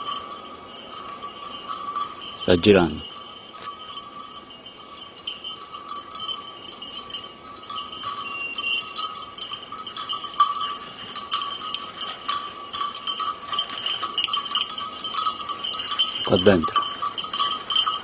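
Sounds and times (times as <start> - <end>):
dog collar bell ringing: 0.0 - 18.0.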